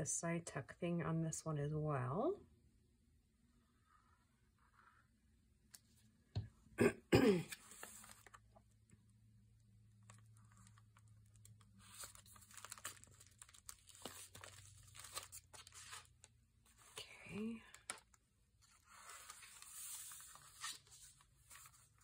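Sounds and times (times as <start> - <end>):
paper rustling and crinkling: 7.6 - 8.5, 10.0 - 17.0, 17.7 - 22.0.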